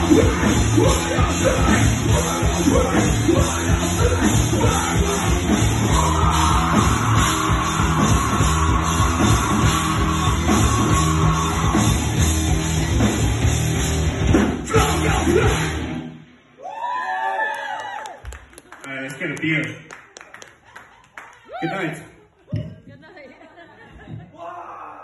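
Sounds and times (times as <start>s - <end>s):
heavy metal band playing: 0.0s - 16.4s
vocalist shouting: 14.7s - 15.7s.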